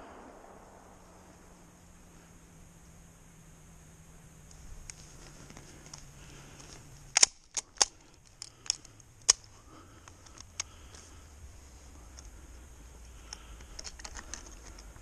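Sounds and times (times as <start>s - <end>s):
shotgun action clicking: 7.1s - 9.5s.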